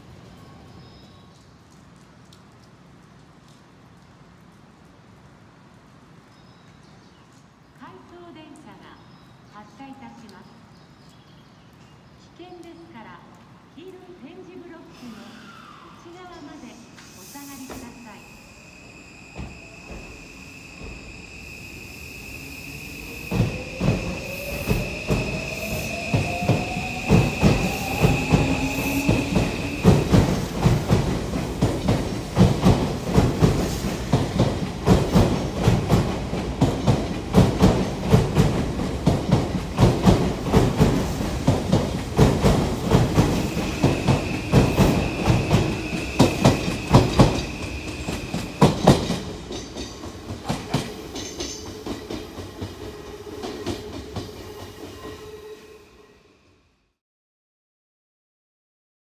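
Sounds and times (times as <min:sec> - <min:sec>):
wheels clacking over rail joints: 0:24.7 - 0:54.4.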